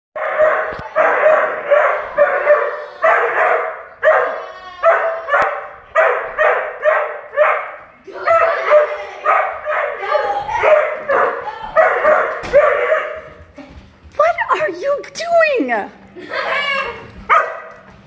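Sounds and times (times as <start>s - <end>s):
dog barking: 0.2s - 10.0s, 10.6s - 13.3s, 17.3s - 17.8s.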